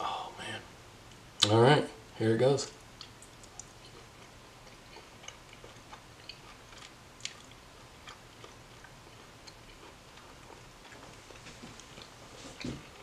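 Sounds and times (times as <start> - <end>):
mouth and teeth clicks: 3.0 - 8.2
faint chewing: 3.0 - 13.0.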